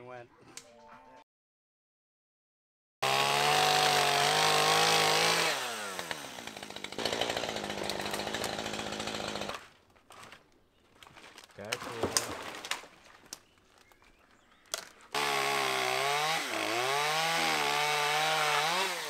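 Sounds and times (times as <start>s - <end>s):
chainsaw running: 3.0s - 9.6s, 15.1s - 19.0s.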